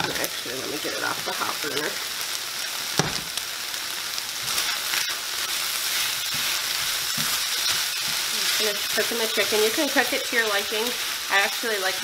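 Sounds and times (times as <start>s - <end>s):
chicken sizzling in a pan: 0.0s - 12.0s
tongs stirring food in a pan: 3.8s - 12.0s.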